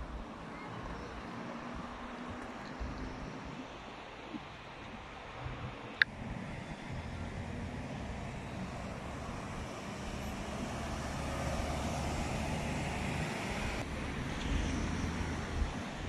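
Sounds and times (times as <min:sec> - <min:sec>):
road traffic rumble: 0:05.2 - 0:16.0
pickup truck driving past: 0:06.2 - 0:15.8.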